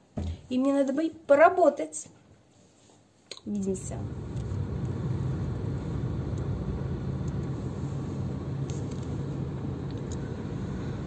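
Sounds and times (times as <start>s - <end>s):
car engine and road rumble: 3.8s - 11.0s.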